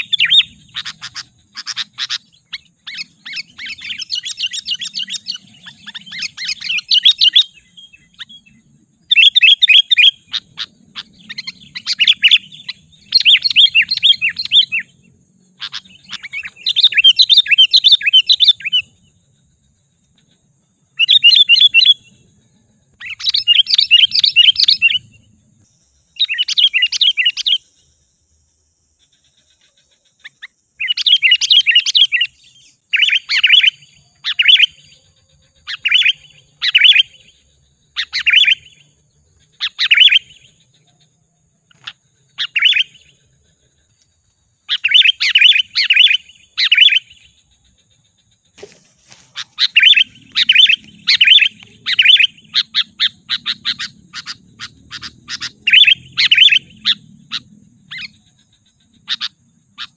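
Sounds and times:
bulbul singing: 0.0 - 28.2, 28.9 - 59.9.

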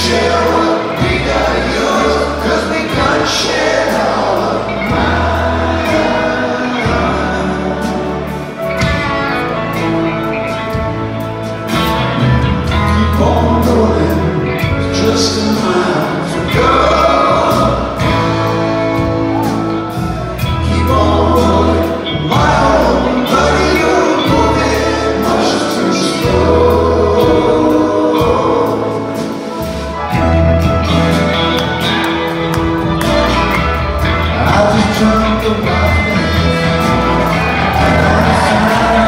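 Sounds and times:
drums: 0.0 - 39.0
electric guitar: 0.0 - 39.0
keyboards: 0.0 - 39.0
upright bass: 0.0 - 39.0
person singing: 12.2 - 39.0.

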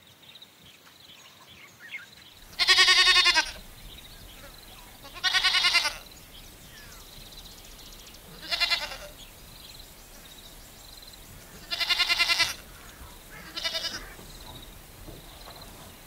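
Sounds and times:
sheep bleating: 2.5 - 6.9, 7.6 - 14.9.

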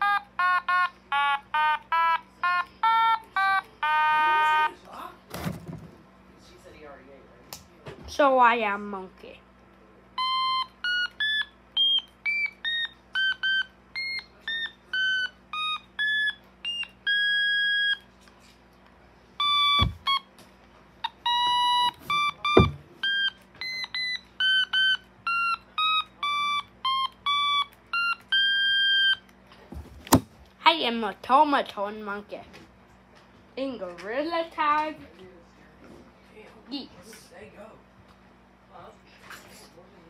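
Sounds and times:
sharp knocks: 19.8 - 20.0.

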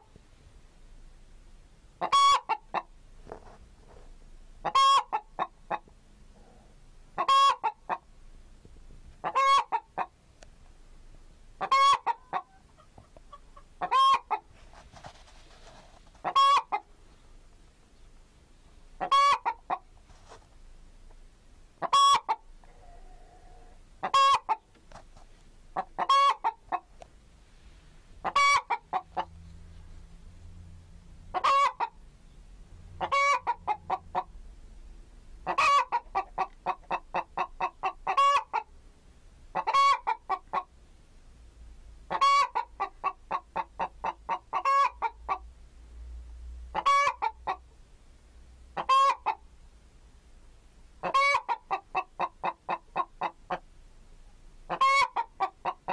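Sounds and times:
chicken calling and clucking: 2.0 - 4.0, 4.6 - 8.1, 9.2 - 10.2, 11.6 - 17.2, 19.0 - 20.5, 21.8 - 25.0, 25.7 - 27.1, 28.2 - 29.5, 31.3 - 32.0, 33.0 - 34.3, 35.4 - 38.8, 39.5 - 40.8, 42.1 - 45.5, 46.7 - 47.8, 48.7 - 49.5, 51.0 - 53.7, 54.7 - 55.9.

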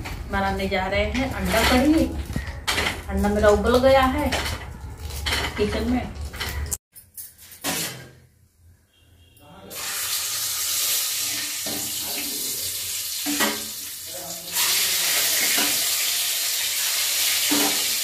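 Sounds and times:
hissing pot of hot water: 9.7 - 18.0.

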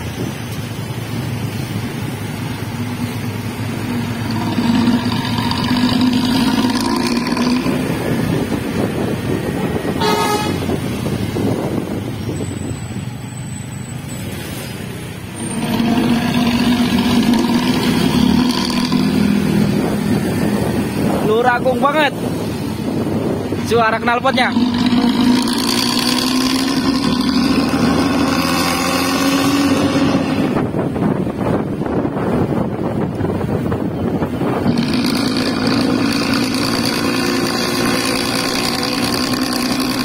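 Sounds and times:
bus engine with tinny exhaust: 0.0 - 21.3, 24.6 - 40.0
horn toot: 9.9 - 10.9.

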